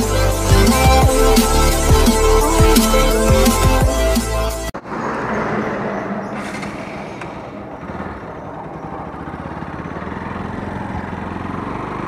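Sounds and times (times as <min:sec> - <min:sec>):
road noise: 0:00.0 - 0:12.0
motorcycle engine running: 0:07.4 - 0:12.0.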